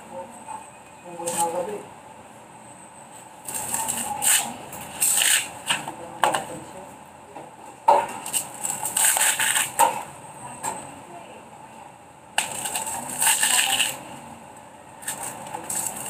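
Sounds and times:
machete scraping husk: 0:03.5 - 0:05.5, 0:08.7 - 0:09.8.

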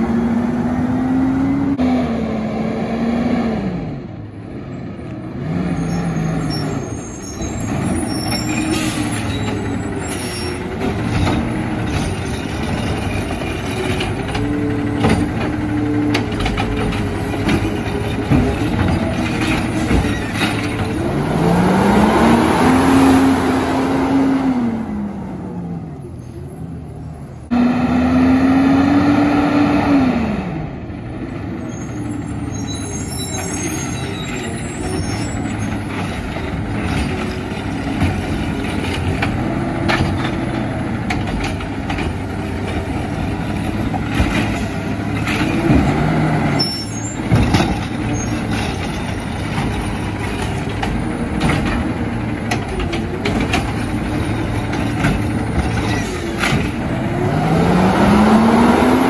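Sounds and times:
garbage truck engine revving: 0:05.3 - 0:26.0, 0:27.5 - 0:30.8, 0:33.5 - 0:59.0
clunks and knocks: 0:10.5 - 0:21.2, 0:34.8 - 0:57.1.

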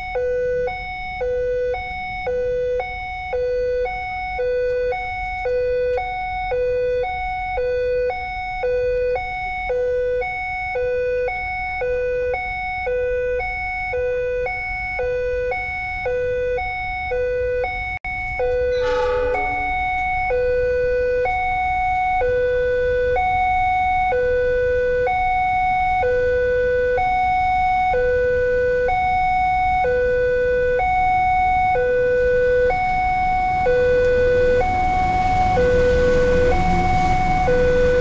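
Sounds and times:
two-tone level crossing alarm: 0:00.0 - 0:38.0
short sliding tone: 0:18.7 - 0:20.5.

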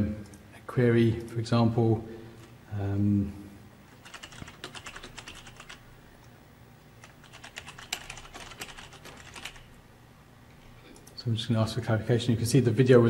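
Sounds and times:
typing on computer keyboard: 0:03.9 - 0:05.8, 0:07.0 - 0:09.7.

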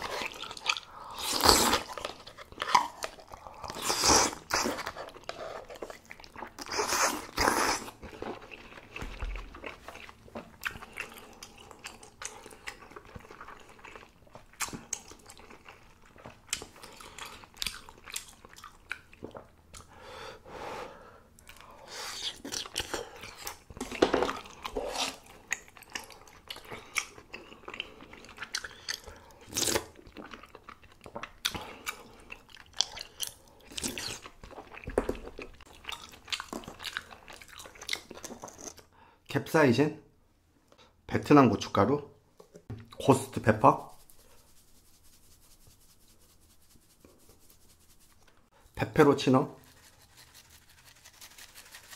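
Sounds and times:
person chewing and biting: 0:00.0 - 0:19.9, 0:21.5 - 0:38.8.

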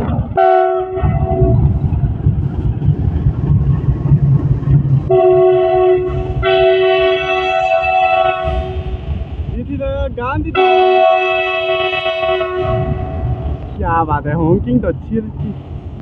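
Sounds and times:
locomotive engine rumble: 0:00.0 - 0:16.0
train wheels on rails: 0:00.0 - 0:16.0
diesel locomotive horn blasts: 0:00.4 - 0:01.6, 0:05.1 - 0:09.1, 0:10.5 - 0:13.5.

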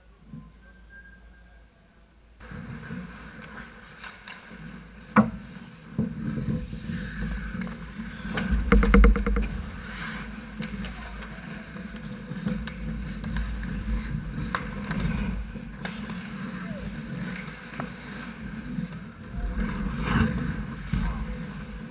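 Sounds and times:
sticks and puck clacking: 0:05.9 - 0:19.2
rapid rattle of knocks: 0:08.4 - 0:10.1
skates scraping ice: 0:09.9 - 0:21.9.

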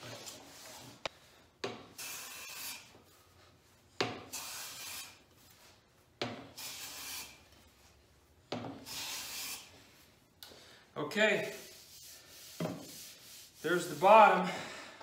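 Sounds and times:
hand plane swishing along board: 0:01.6 - 0:03.0, 0:04.0 - 0:05.3, 0:06.2 - 0:07.5, 0:11.5 - 0:14.2.

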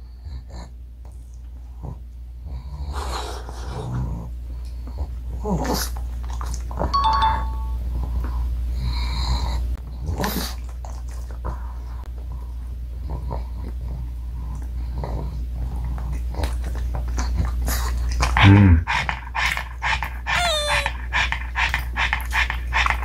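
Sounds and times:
steady low hum: 0:00.0 - 0:23.0
two-note chime: 0:07.0 - 0:07.9.

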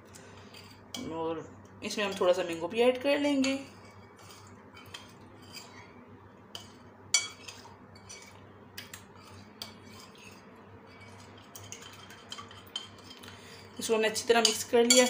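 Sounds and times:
spoon stirring in a bowl: 0:00.1 - 0:01.2, 0:01.8 - 0:15.0
spoon clinking against bowl: 0:14.4 - 0:15.0.

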